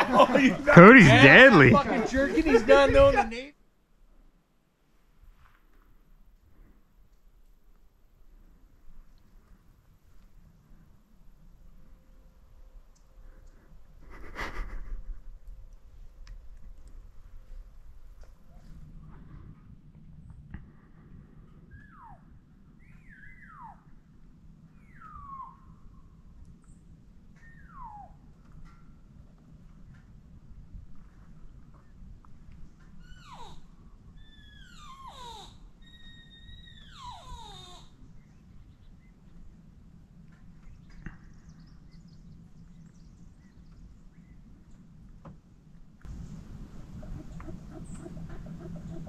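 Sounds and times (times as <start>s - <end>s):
elk whistled calls: 21.7s - 23.9s, 24.8s - 25.8s, 27.4s - 28.2s
low steady rumble: 38.0s - 49.0s.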